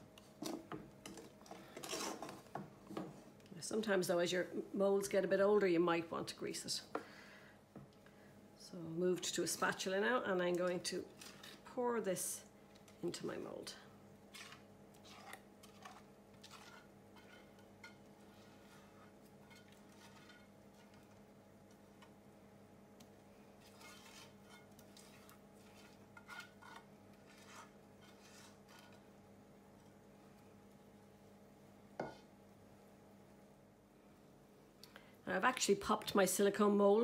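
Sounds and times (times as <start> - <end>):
low steady hum: 0.0 - 37.0
spatula scraping a saucepan: 1.7 - 2.4, 14.3 - 21.2, 23.6 - 29.1.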